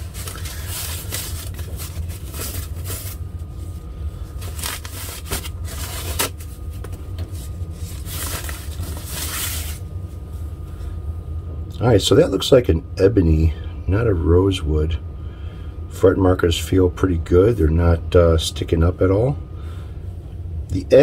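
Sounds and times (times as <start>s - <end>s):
plastic wrapping crinkling: 0.0s - 3.6s, 4.3s - 9.8s.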